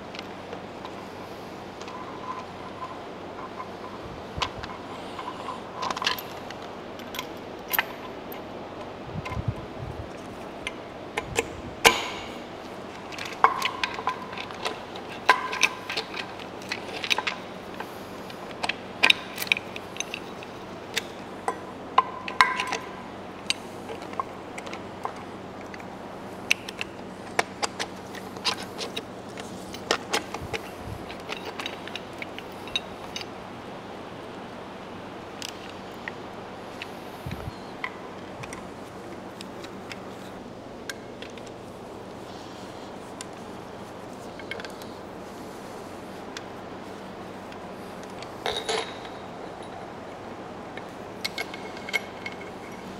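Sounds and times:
metallic clinks and rattles: 48.2 - 50.0, 51.2 - 52.9.

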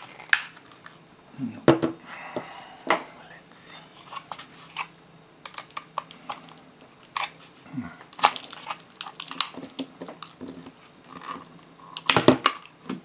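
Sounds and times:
plastic case cracking apart: 0.0 - 0.9, 8.1 - 13.0.

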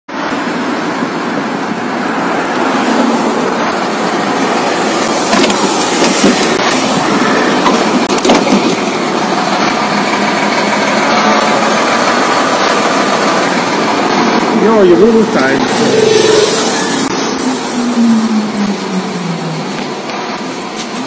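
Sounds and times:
bus engine running: 0.1 - 21.0.

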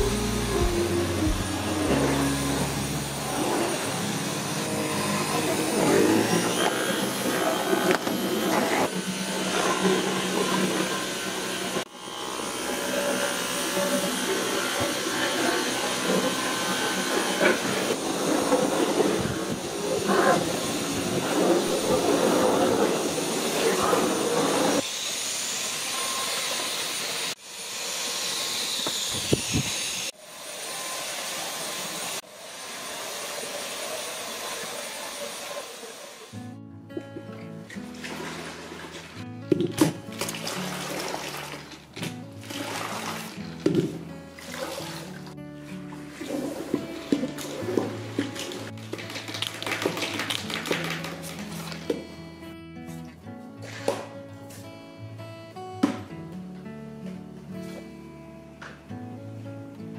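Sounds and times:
vacuum cleaner running on rug: 0.0 - 36.4, 46.1 - 52.0.

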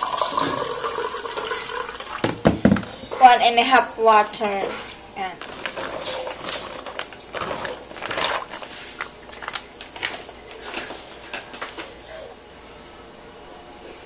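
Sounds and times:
plastic bag crinkling: 5.4 - 11.9.

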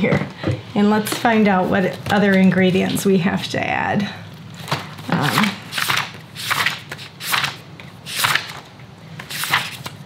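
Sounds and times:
paper pages flipping: 4.6 - 10.0.

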